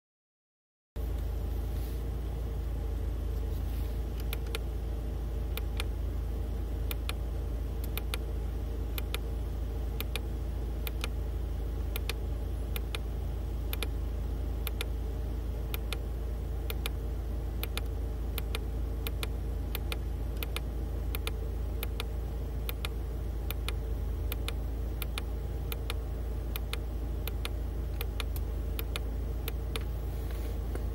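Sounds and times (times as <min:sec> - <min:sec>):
low hum inside car: 0:01.0 - 0:30.9
buttons clicking: 0:12.0 - 0:12.2, 0:13.7 - 0:13.9, 0:17.6 - 0:22.1, 0:22.7 - 0:29.9.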